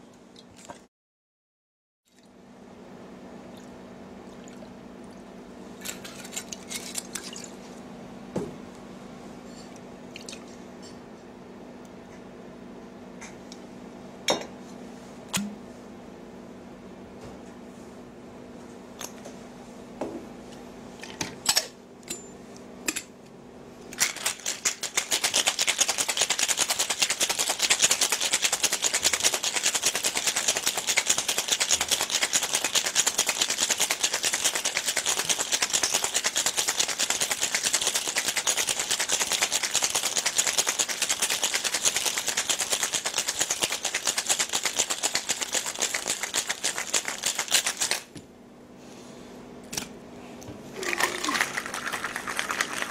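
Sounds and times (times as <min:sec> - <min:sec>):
ice rattling in cocktail shaker: 0:24.0 - 0:48.1, 0:50.8 - 0:52.9.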